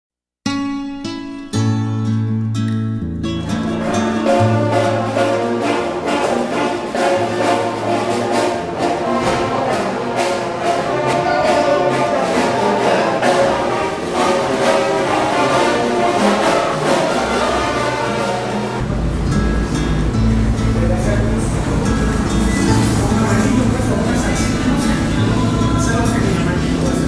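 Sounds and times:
orchestral music with brass: 3.6s - 19.2s.

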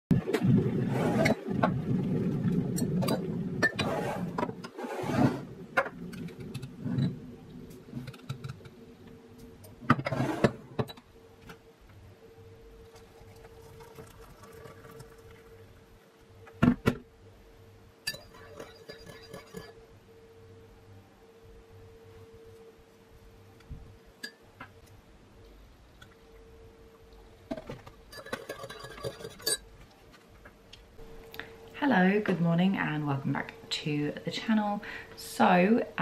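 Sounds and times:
electric kettle rumbling: 12.5s - 17.0s, 31.0s - 36.0s.

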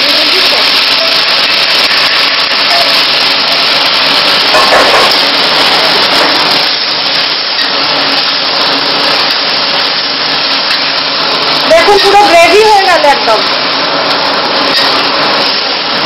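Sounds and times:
gravy hissing in a pan: 0.0s - 16.0s
metal spatula stirring: 6.0s - 12.4s.

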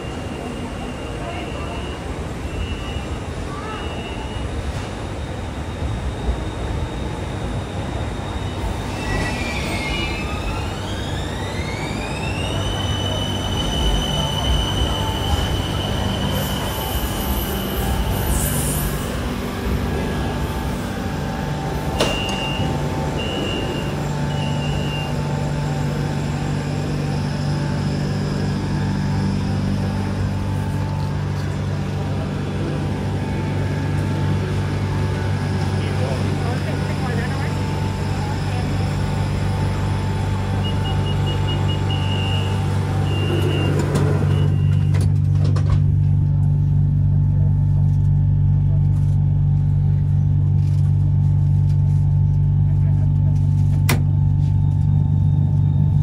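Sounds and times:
stopped train hum: 0.0s - 56.0s
high door warning beeps: 21.9s - 25.3s, 40.6s - 45.1s.

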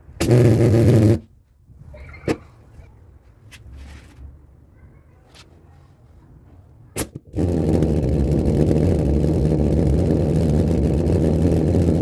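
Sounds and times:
pulsing flame buzz: 0.2s - 1.2s, 7.2s - 12.0s
vapour igniting with a pop: 7.0s - 7.5s.

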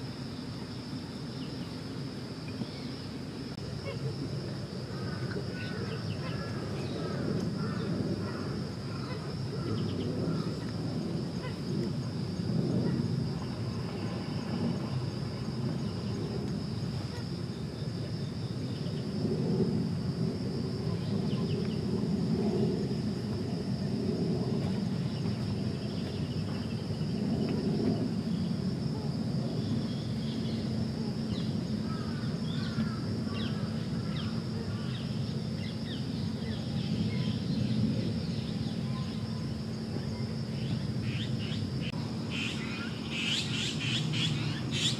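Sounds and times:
high insect drone: 0.0s - 44.9s
distant voices murmuring: 3.6s - 17.4s.

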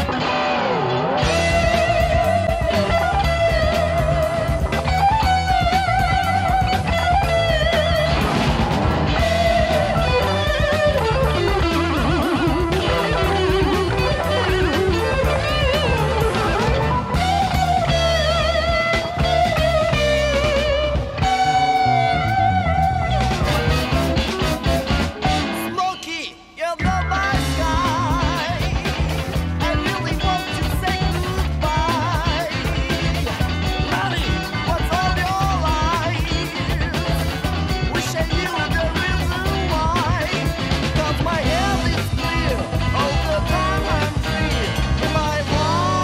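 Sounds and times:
electric guitar lead melody: 0.0s - 46.0s
rock backing track: 0.0s - 46.0s.

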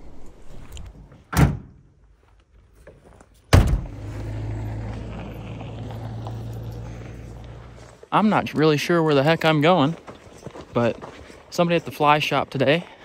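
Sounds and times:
truck door slamming: 1.2s - 1.8s, 3.5s - 4.0s.

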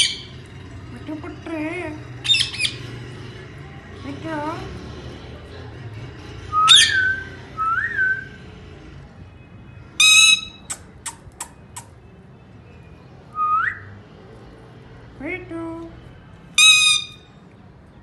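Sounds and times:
parakeet harsh squawk: 0.0s - 0.3s, 2.2s - 2.8s, 10.0s - 11.3s, 16.6s - 17.3s
parakeet rising whistles: 6.5s - 8.3s.

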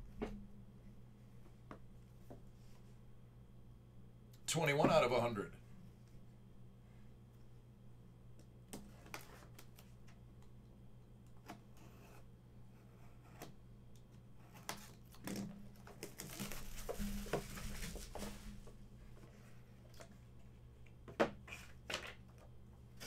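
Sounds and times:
packaging crinkling: 15.9s - 18.4s.

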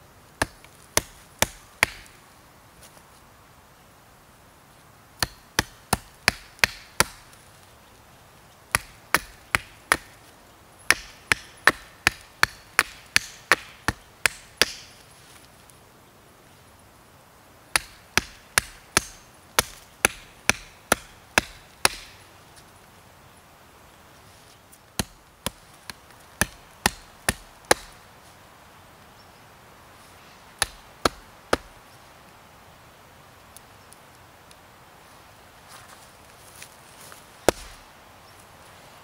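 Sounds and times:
hatchet chopping wood: 0.4s - 2.2s, 5.2s - 7.3s, 8.7s - 10.2s, 10.9s - 14.9s, 17.7s - 22.2s, 25.0s - 28.0s, 30.6s - 31.7s, 37.5s - 37.8s.

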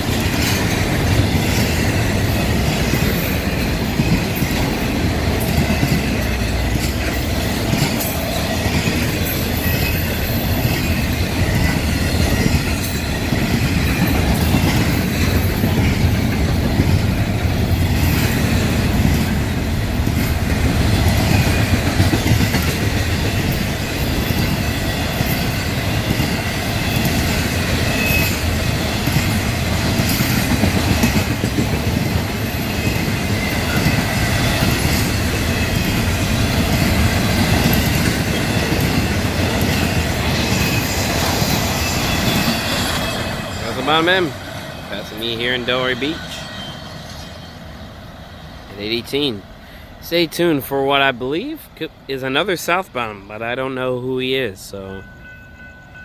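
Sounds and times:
train wheels rumbling on rails: 0.0s - 56.0s
high wheel squeal: 5.7s - 15.8s, 23.4s - 29.0s, 32.4s - 49.0s.

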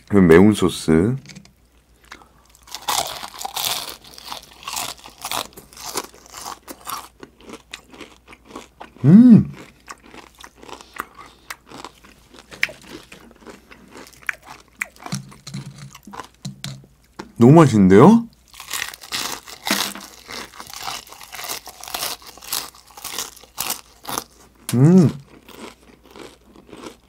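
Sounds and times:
crunching and chewing crispy food: 1.8s - 17.2s, 18.3s - 27.0s
closed-mouth hum: 8.9s - 9.6s, 24.7s - 25.3s.

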